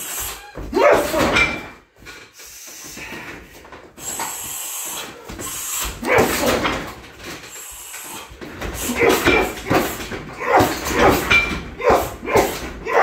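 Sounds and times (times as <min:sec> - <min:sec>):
person grunting loudly: 0:06.0 - 0:06.8.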